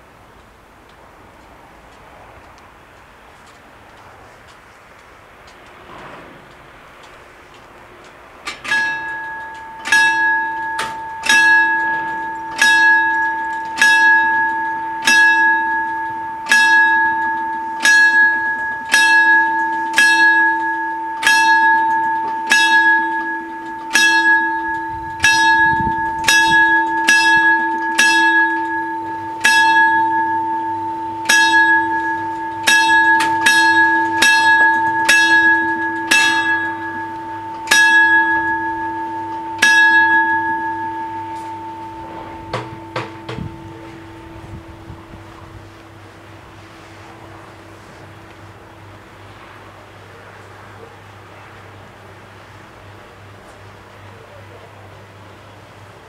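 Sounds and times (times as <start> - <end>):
level crossing bell ringing: 8.5 - 48.9.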